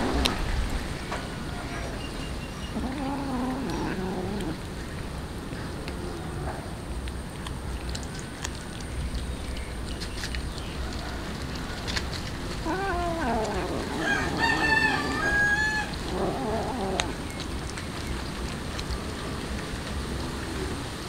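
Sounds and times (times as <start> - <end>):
kitten eating soft clicks: 2.9 - 13.9, 15.9 - 21.0
rooster crowing: 13.7 - 16.1.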